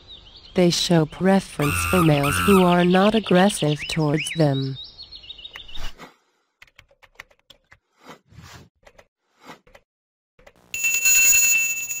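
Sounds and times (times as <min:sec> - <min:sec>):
notification bell ring: 0:10.8 - 0:12.0.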